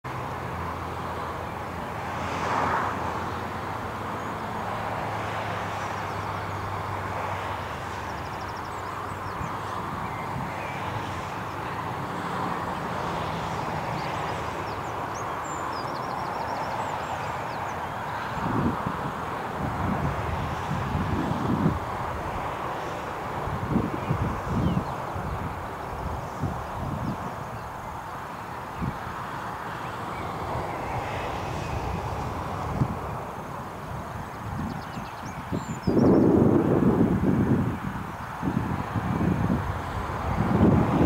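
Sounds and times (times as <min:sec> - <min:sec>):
distant engine drone: 0:00.1 - 0:41.0
birds chirping: 0:02.4 - 0:18.7, 0:23.8 - 0:31.9, 0:33.1 - 0:36.4.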